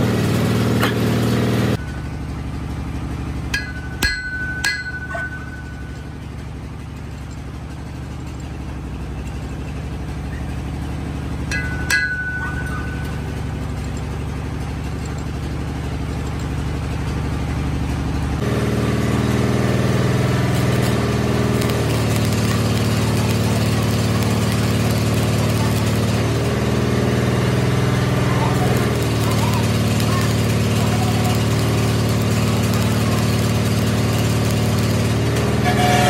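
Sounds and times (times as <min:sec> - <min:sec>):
workshop machinery hum: 0:00.0 - 0:36.0
hammer blow on steel shaft: 0:35.4 - 0:36.0.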